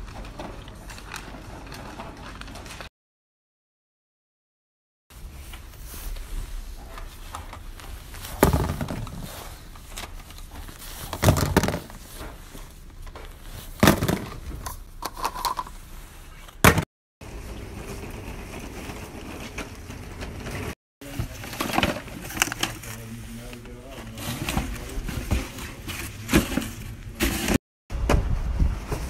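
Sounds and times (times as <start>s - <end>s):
rustling handling noise: 5.1s - 16.6s, 17.2s - 27.6s.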